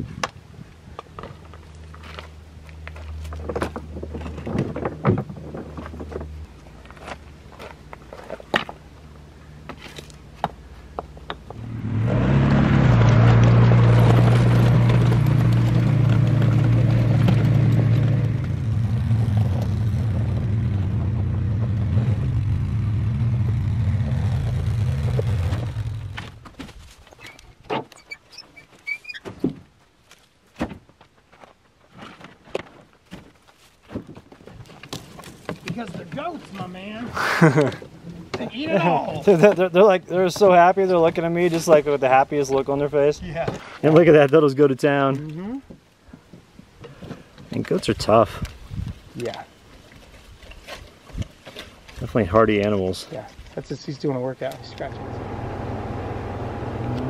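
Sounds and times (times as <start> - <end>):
vehicle engine humming: 5.6 - 26.5, 54.2 - 57.0
goats chewing pine branches: 49.2 - 52.2.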